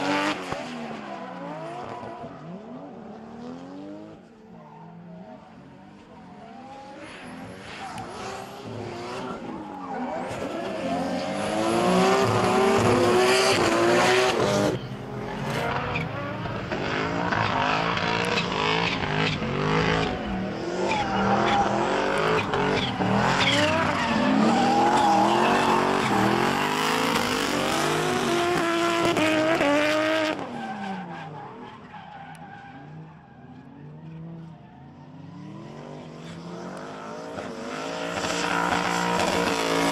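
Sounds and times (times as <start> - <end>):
car engines revving: 0.0 - 39.9
tyres squealing and skidding: 0.3 - 3.2, 4.3 - 39.9.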